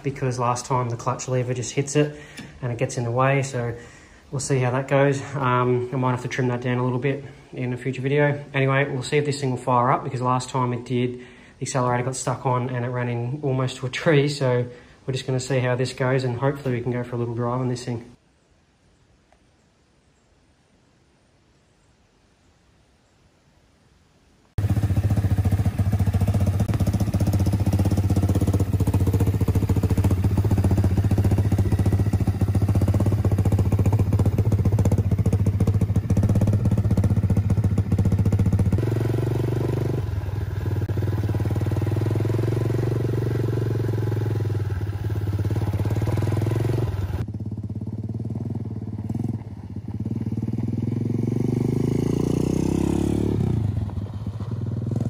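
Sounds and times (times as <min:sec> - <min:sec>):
go-kart engine running: 0:24.6 - 0:55.0.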